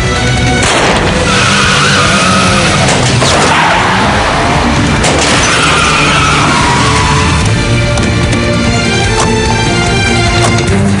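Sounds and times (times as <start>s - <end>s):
tense dramatic score: 0.0s - 11.0s
car tyres squealing: 1.2s - 4.6s, 5.2s - 7.6s.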